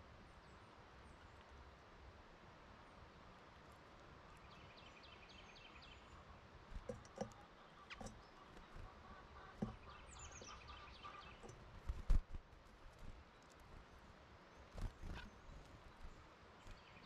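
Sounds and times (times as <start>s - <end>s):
songbird singing: 3.8s - 12.0s, 12.8s - 17.0s
soft short knocks: 9.5s - 10.5s.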